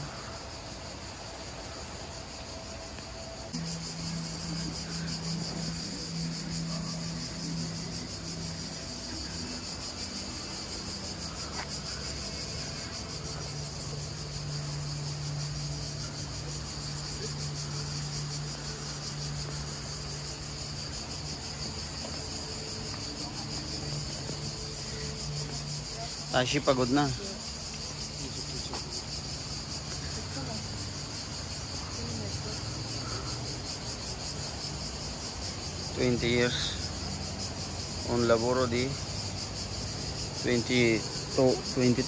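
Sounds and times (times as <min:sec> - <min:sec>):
steady low hum: 0:00.0 - 0:26.3
insects chirring: 0:00.0 - 0:42.0.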